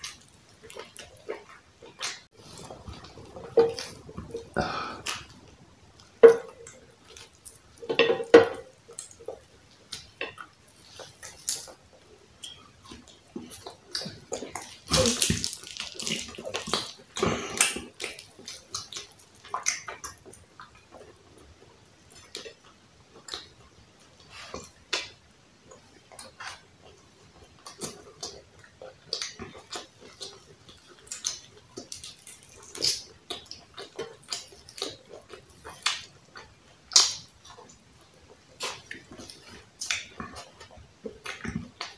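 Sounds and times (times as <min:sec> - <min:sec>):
chewing with wet clicks: 0:00.0 - 0:41.9.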